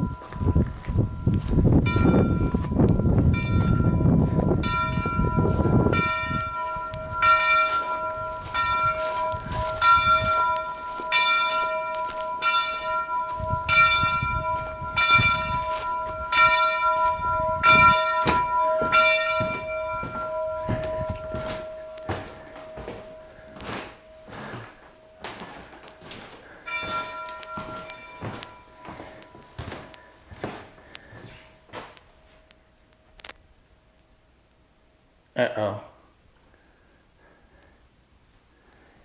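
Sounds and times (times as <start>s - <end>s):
low rumble: 0.0s - 25.6s
large bell ringing: 0.0s - 32.9s.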